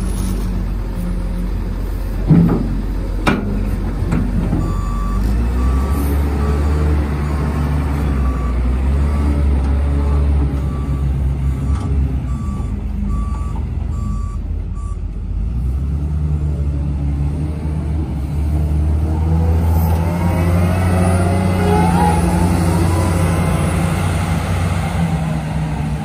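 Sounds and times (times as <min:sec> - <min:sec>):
reverse alarm beeping: 0:04.6 - 0:07.5, 0:11.6 - 0:15.0.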